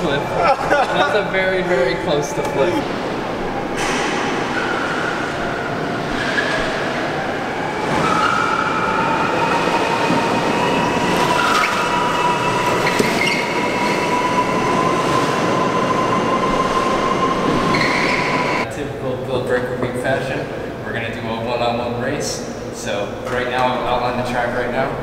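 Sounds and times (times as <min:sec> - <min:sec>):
tyres squealing on concrete: 0:10.7 - 0:18.6.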